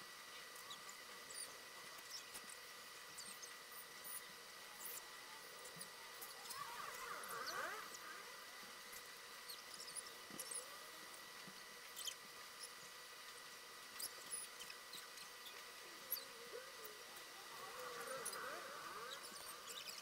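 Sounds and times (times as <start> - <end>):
steady hiss: 0.0 - 20.0
squeaky pencil glides: 17.8 - 20.0.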